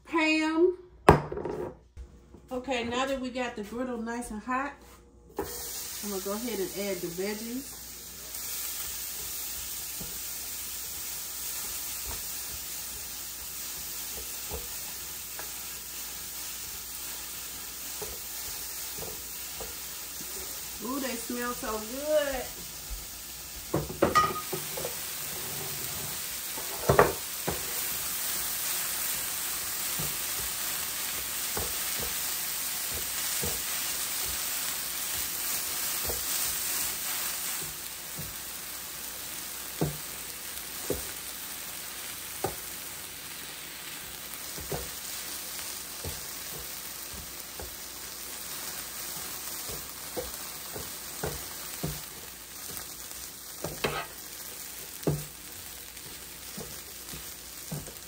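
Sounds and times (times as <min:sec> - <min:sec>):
vegetables sizzling on griddle: 0:05.3 - 0:58.0
utensil scraping griddle: 0:24.6 - 0:28.0, 0:53.6 - 0:54.3.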